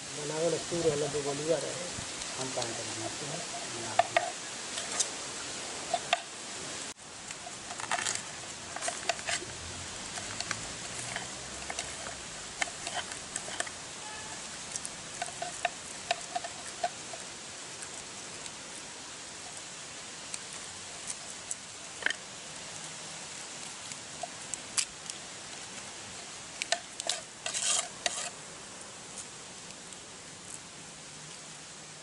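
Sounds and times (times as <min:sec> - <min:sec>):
steady hiss: 0:00.0 - 0:32.0
knife scraping fish scales: 0:03.0 - 0:05.1, 0:05.8 - 0:06.3, 0:07.4 - 0:09.5, 0:10.1 - 0:17.3, 0:26.2 - 0:28.4.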